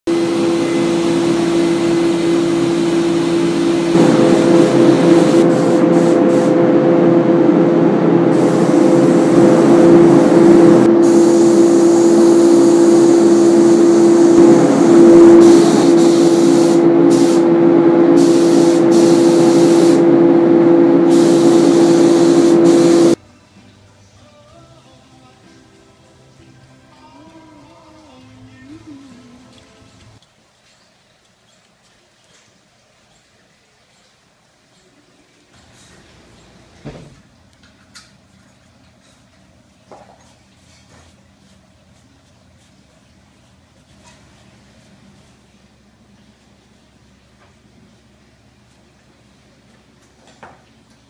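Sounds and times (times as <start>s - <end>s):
spray gun hissing: 0.1s - 6.7s, 8.3s - 20.2s, 20.8s - 23.2s
low hum: 0.1s - 23.3s.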